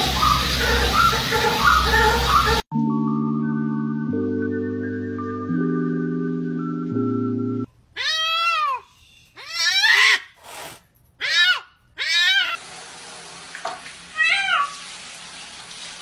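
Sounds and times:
cat meowing: 8.0 - 8.8.

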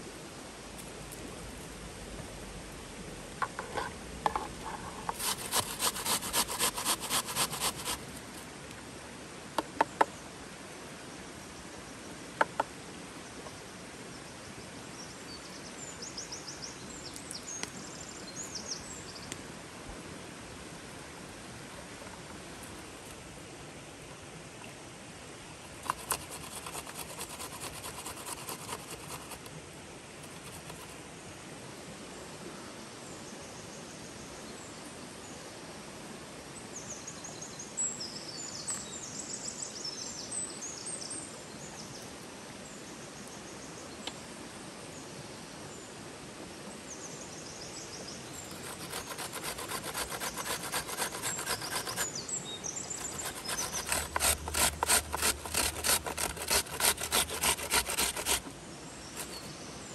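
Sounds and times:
stream rushing: 0.0 - 9.6, 48.3 - 59.3
vegetables grated on metal grater: 5.1 - 8.0, 25.8 - 29.3, 48.6 - 52.1, 53.0 - 58.4.

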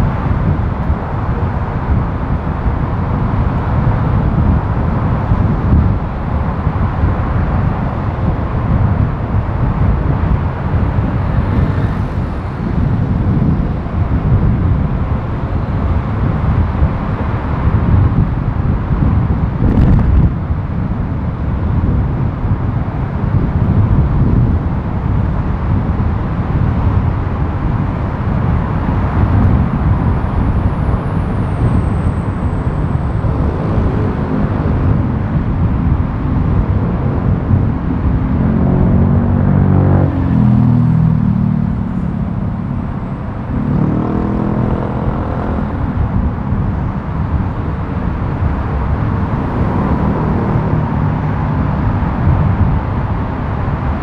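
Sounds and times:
road noise and wind rumble: 0.0 - 54.0
engine revving: 32.6 - 46.3, 47.7 - 52.7.

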